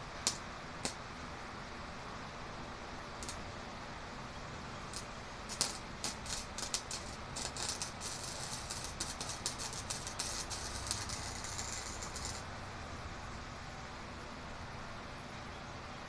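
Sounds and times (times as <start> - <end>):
welding arc crackling: 0.0 - 1.0, 3.2 - 3.5, 4.9 - 12.5.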